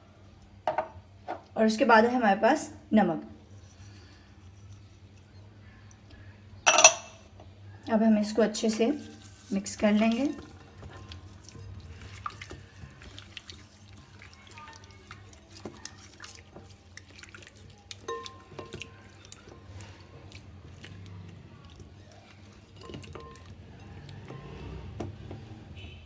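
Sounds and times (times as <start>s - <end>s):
wet squishing of raw meat: 9.0s - 25.7s.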